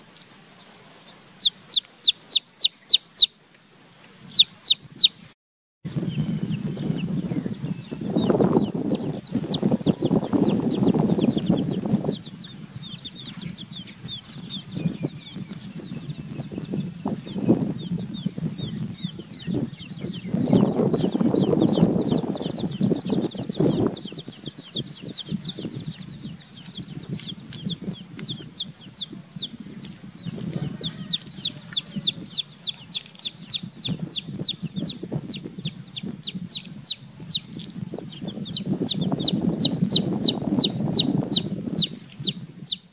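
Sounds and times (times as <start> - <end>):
chicks peeping: 1.4 - 3.3, 4.3 - 42.9.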